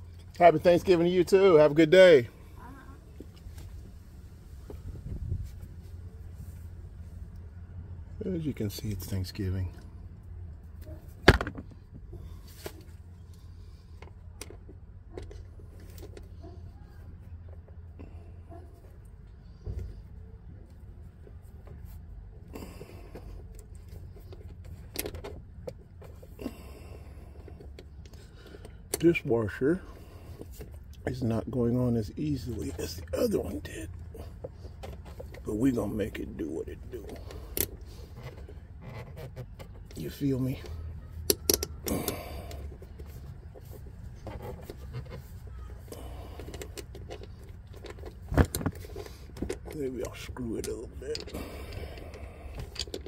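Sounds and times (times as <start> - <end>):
steady low hum: 0.0 - 53.0
light clicks and rustles: 36.8 - 53.0
metallic clicks of wrench and bolts: 41.3 - 42.6.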